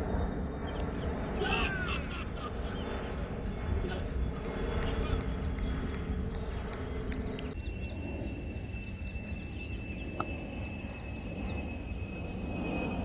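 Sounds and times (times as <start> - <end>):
distant engine drone: 0.0 - 13.0
wind rumble on microphone: 0.0 - 13.0
thin high whine: 6.5 - 13.0.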